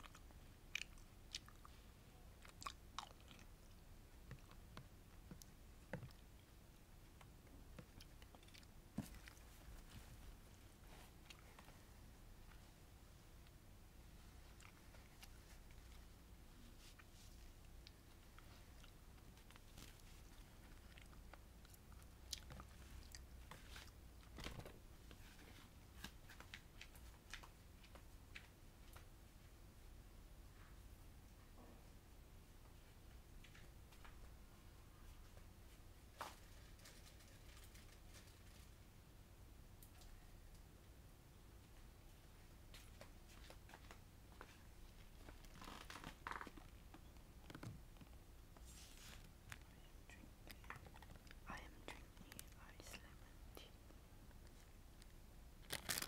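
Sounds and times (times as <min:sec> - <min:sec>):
chewing: 0:00.0 - 0:01.8, 0:02.4 - 0:06.4, 0:07.8 - 0:09.5, 0:17.7 - 0:23.3
faint clicks and taps: 0:04.2 - 0:06.4
plastic being handled: 0:55.6 - 0:56.0
plastic rustle: 0:55.6 - 0:56.0.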